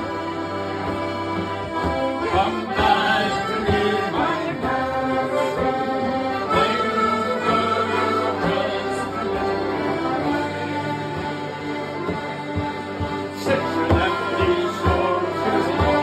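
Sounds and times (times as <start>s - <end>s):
accordion playing a tune: 0.0s - 16.0s
frame drum beat: 1.6s - 16.0s
men singing together: 2.2s - 5.8s, 6.5s - 9.5s, 13.4s - 16.0s.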